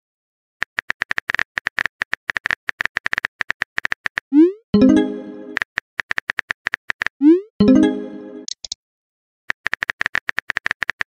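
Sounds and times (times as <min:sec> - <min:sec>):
message notification chime: 0:04.8 - 0:05.6, 0:07.6 - 0:08.5.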